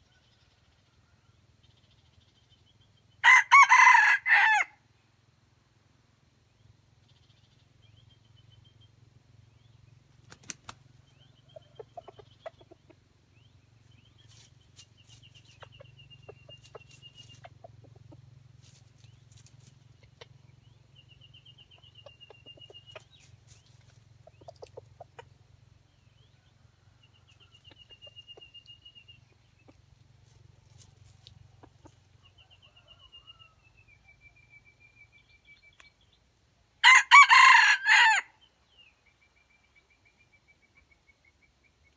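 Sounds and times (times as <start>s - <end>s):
pecking and scratching in leaves: 14.2s - 15.8s, 16.5s - 17.6s, 18.5s - 20.0s, 22.9s - 24.8s, 30.1s - 31.6s.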